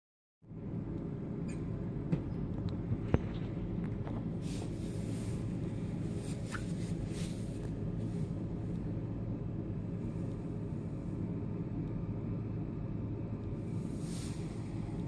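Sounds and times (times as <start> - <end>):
steady low hum: 0.4 - 15.0
hand swishing over cardboard: 4.4 - 8.3, 13.8 - 15.0.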